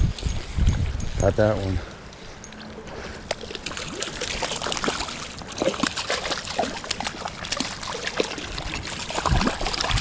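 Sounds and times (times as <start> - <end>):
fish splashing in water: 3.3 - 10.0.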